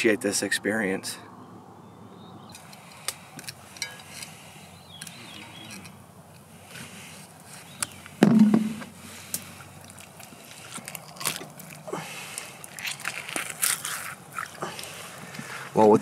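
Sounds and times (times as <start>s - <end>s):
campfire crackling: 2.5s - 15.9s
knock on cutting board: 8.2s - 8.8s.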